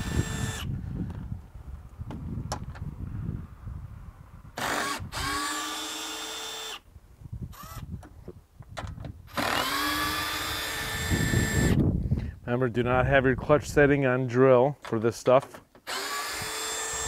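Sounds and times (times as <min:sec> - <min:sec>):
cordless drill motor whine: 0:00.0 - 0:01.2, 0:04.6 - 0:06.9, 0:07.5 - 0:08.0, 0:09.3 - 0:11.9, 0:15.8 - 0:17.0.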